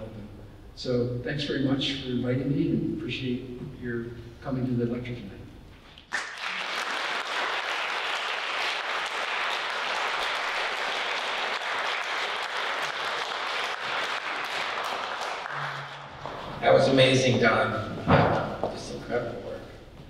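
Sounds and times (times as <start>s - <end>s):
audience applauding: 6.1s - 16.5s.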